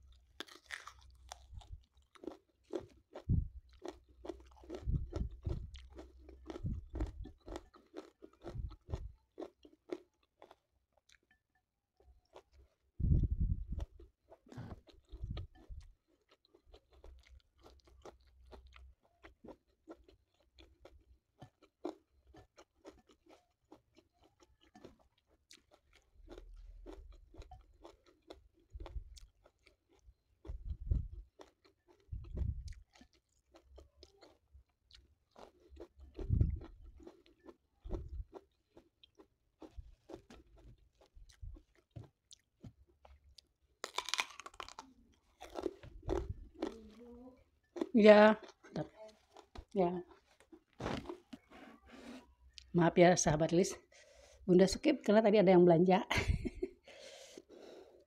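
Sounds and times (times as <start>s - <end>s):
close chewing and mouth sounds: 0.0s - 54.5s
dull low thumps: 3.3s - 3.6s, 4.7s - 5.8s, 13.0s - 13.8s, 30.6s - 31.2s, 36.2s - 36.7s.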